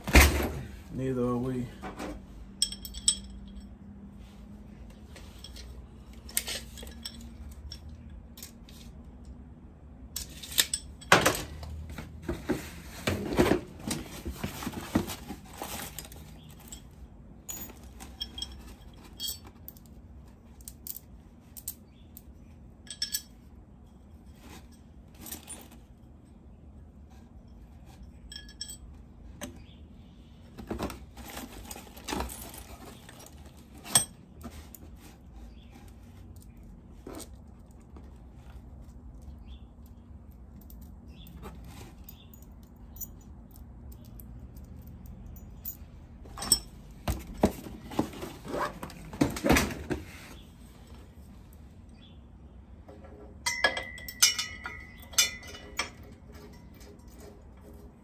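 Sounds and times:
metal tools clinking: 2.5s - 3.9s, 5.0s - 9.3s, 10.2s - 12.5s, 13.1s - 20.0s, 20.6s - 26.5s, 27.1s - 29.7s, 30.7s - 37.8s, 39.2s - 49.6s, 53.4s - 58.0s.

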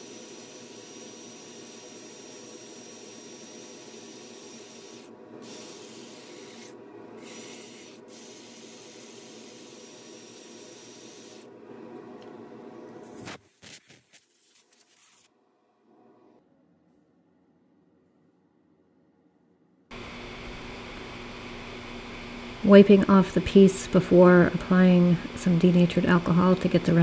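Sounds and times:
sanding pad abrasive hiss: 0.0s - 11.5s
faint motor hum: 0.0s - 13.4s, 19.9s - 27.0s.

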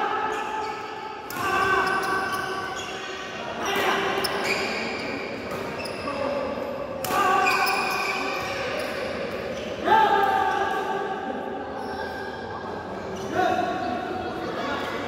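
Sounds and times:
shoes squeaking on court floor: 1.6s - 6.3s, 7.4s - 9.7s.

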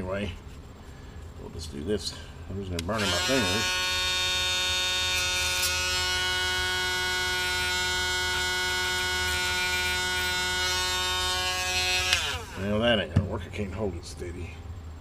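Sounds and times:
rotary tool high-pitched whine: 2.9s - 13.0s
cutting wheel scraping metal: 3.0s - 12.8s.

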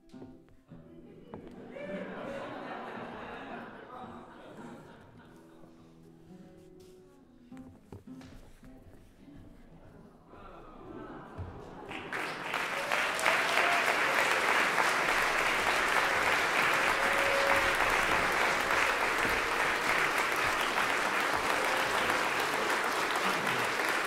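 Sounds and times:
audience applauding: 11.5s - 24.0s.

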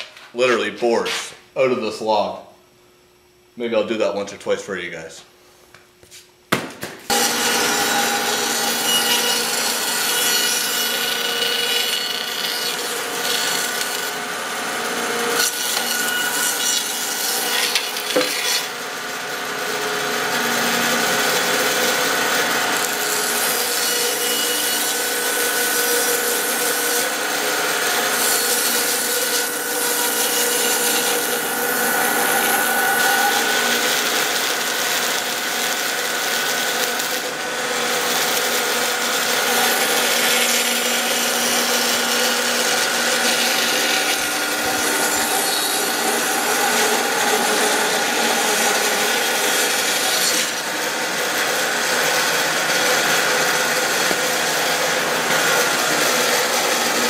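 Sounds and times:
sharp knock: 6.5s - 7.0s
band saw cutting log: 7.1s - 57.0s.

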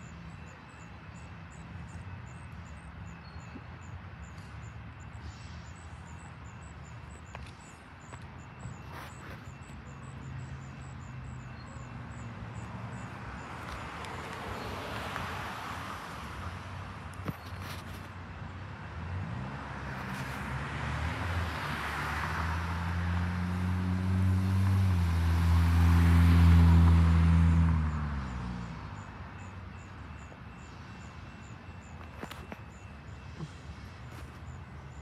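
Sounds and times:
vehicle driving past: 19.0s - 29.0s.

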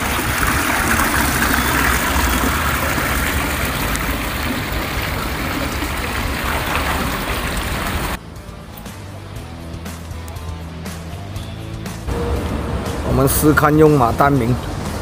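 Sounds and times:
vehicle engine rumble: 0.0s - 8.2s, 11.6s - 15.0s
road noise: 0.0s - 15.0s.

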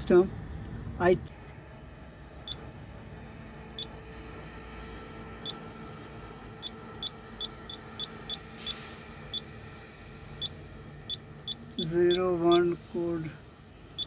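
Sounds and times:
steady low hum: 0.0s - 14.0s
brief hiss: 8.6s - 9.1s.

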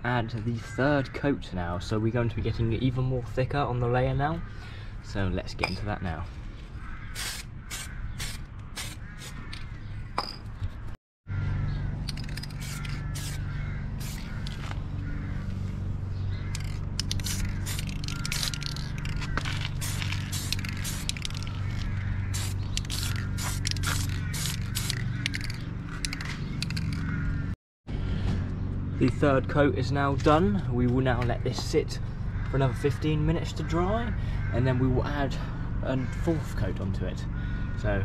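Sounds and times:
birds chirping: 0.0s - 38.0s
spray paint can hissing: 7.2s - 9.4s, 12.2s - 13.4s, 14.0s - 14.6s, 16.6s - 27.0s
steady low hum: 11.3s - 38.0s.

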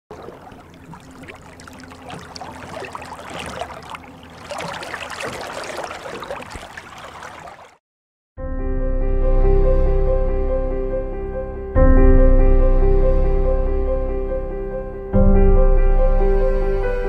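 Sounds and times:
underwater bubbling: 0.1s - 7.8s
soft music with held chords: 8.4s - 17.0s.

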